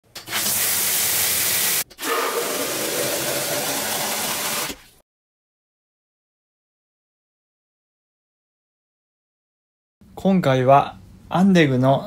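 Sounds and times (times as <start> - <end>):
showerhead spraying water: 0.2 - 4.9
spray pouring into water: 0.3 - 5.0.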